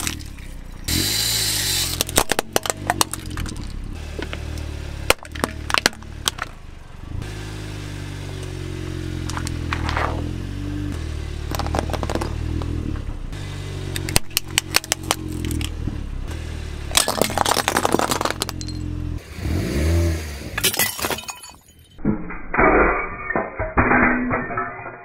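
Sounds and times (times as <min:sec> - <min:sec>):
car engine humming: 0:00.0 - 0:21.5
plastic toys cracking: 0:17.0 - 0:18.8.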